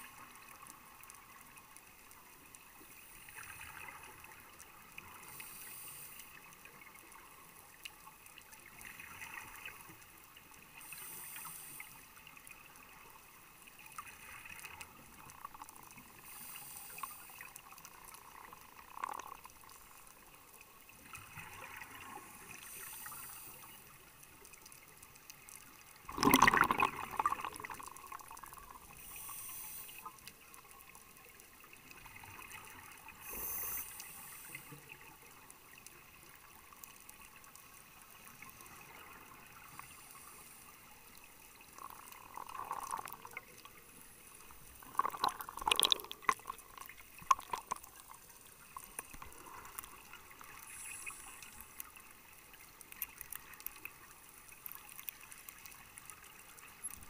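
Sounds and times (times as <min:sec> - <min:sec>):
diver breathing through regulator: 0:16.2 - 0:17.4, 0:29.0 - 0:30.1, 0:33.2 - 0:34.8
bubbles trickling and gurgling: 0:17.8 - 0:19.8, 0:26.0 - 0:29.1, 0:41.4 - 0:57.0.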